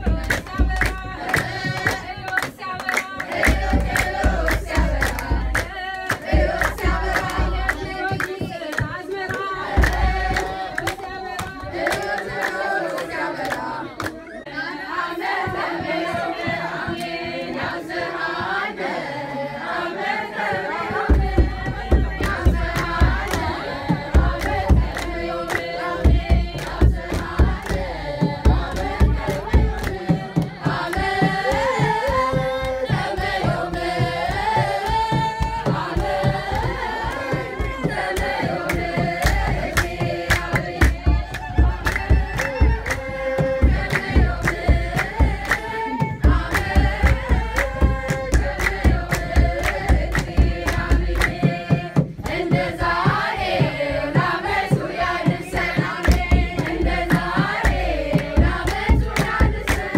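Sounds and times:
hand clapping: 0:00.0 - 0:14.4, 0:15.2 - 0:17.8, 0:20.4 - 0:59.9
drum beating: 0:00.0 - 0:59.9
women singing a hymn: 0:00.0 - 0:59.9.

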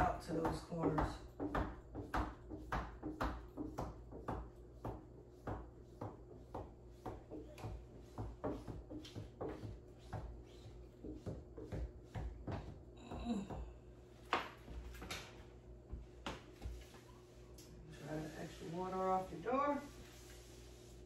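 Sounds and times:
squeegee swiping over wet film: 0:16.6 - 0:21.0.

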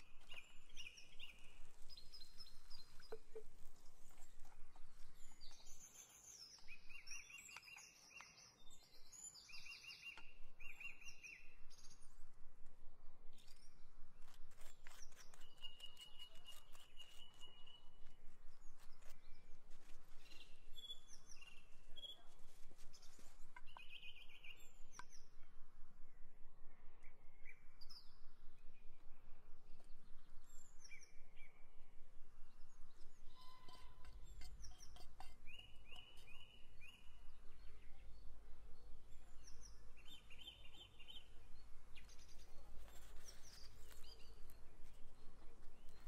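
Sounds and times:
small birds chirping: 0:00.0 - 0:12.6, 0:13.2 - 0:46.0
wooden spoon clicking and scraping: 0:33.7 - 0:36.4.

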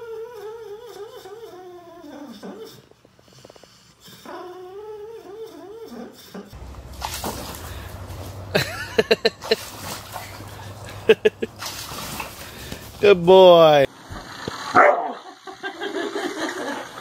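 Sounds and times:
dog whimpering in sleep: 0:00.0 - 0:06.6
dog barking in sharp yaps: 0:14.7 - 0:15.2.

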